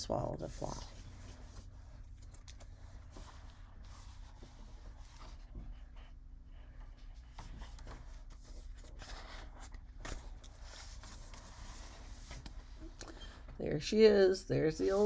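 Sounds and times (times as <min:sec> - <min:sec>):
steady low hum: 0:00.0 - 0:15.0
paper rustling: 0:07.2 - 0:12.7.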